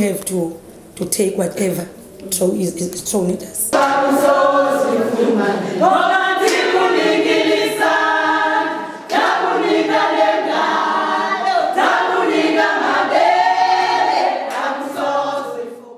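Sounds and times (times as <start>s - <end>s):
women singing without instruments: 3.6s - 15.9s.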